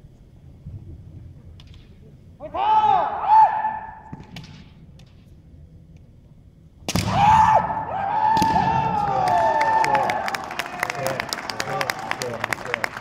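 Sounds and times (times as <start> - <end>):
fencers shouting: 2.4 - 4.1, 7.1 - 11.1.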